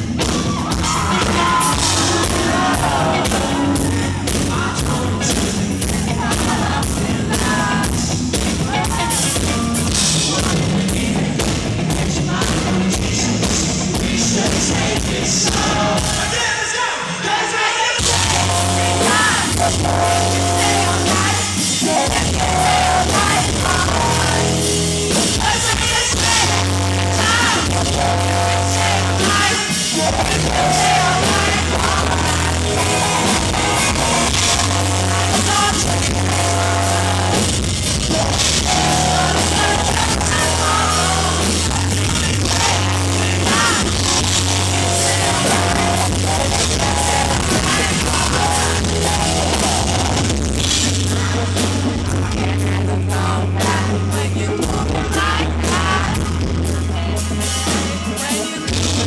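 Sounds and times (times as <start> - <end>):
bass guitar: 0.0 - 16.4, 18.0 - 59.0
drums: 0.0 - 59.0
person singing: 0.2 - 59.0
electric guitar: 18.0 - 59.0.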